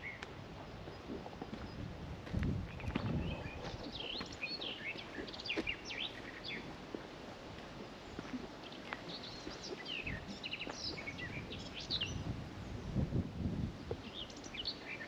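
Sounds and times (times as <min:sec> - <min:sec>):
songbirds chirping: 0:00.0 - 0:01.9, 0:02.6 - 0:13.1, 0:13.7 - 0:15.0
footsteps on dirt path: 0:00.3 - 0:11.7.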